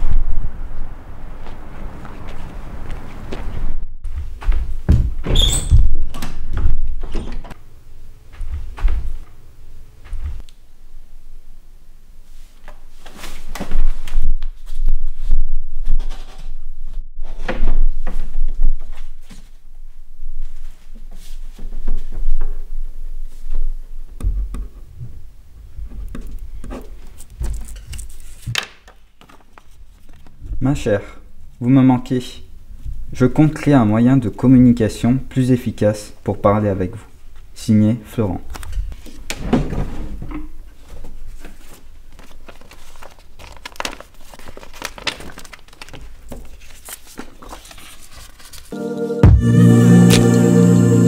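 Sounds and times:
paper rustle: 26.9s - 30.5s, 40.8s - 48.8s.

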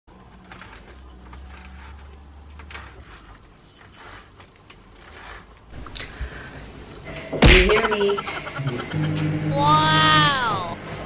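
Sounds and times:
low steady hum: 5.6s - 11.0s.

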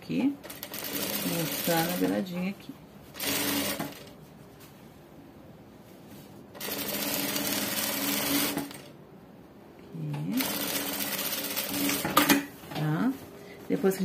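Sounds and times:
sewing machine stitching: 0.4s - 2.2s, 3.2s - 4.1s, 6.6s - 8.9s, 10.4s - 12.3s.

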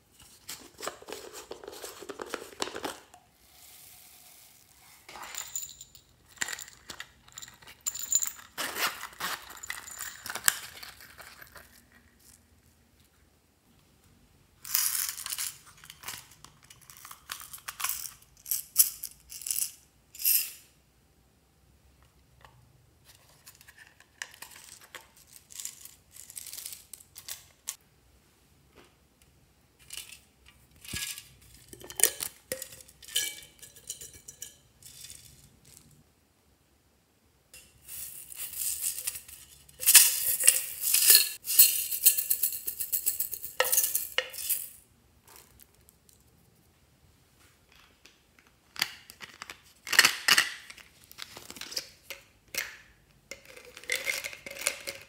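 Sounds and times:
plastic beads clattering into glass dish: 37.6s - 44.8s, 53.3s - 55.0s.

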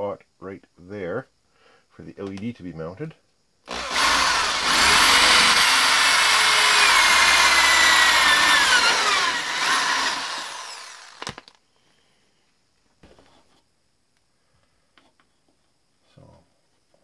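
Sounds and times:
electric drill boring wood: 3.7s - 11.5s.

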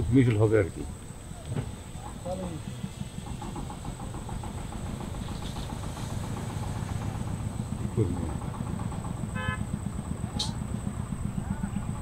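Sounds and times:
low motor drone: 2.3s - 12.0s.

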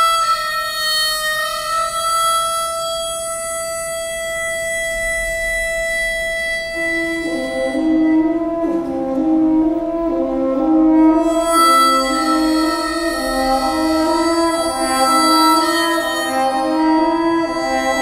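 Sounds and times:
harmonica long high note: 0.0s - 18.0s
orchestra low held chords: 5.0s - 18.0s.

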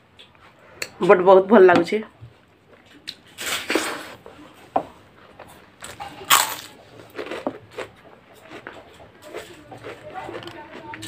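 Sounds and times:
woman chewing food: 2.5s - 11.0s.

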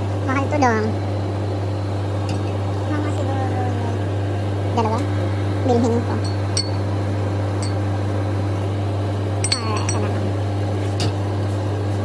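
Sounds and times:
refrigerated display case hum: 0.0s - 12.0s
glass bottles and cans clinking: 9.4s - 10.1s.

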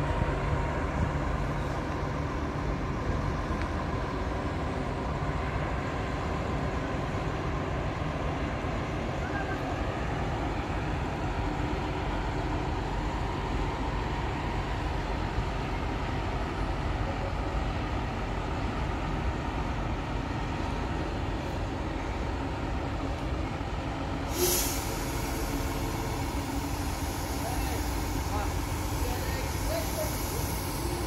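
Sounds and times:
train rumbling slowly: 0.0s - 31.0s
air brake hiss: 24.2s - 31.0s.

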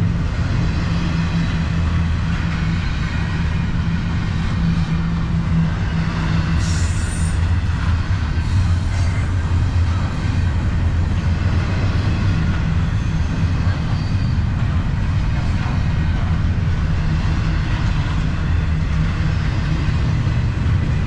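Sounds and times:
freight train wheels rumbling: 0.0s - 21.0s
high wheel squeal: 12.1s - 14.5s.

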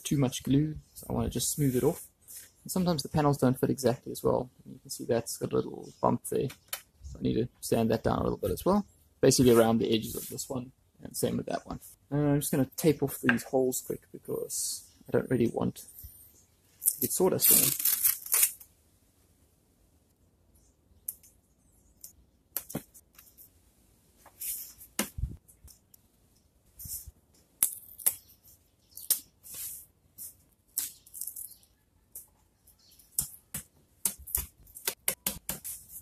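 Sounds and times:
masking tape ripping: 17.3s - 18.7s.

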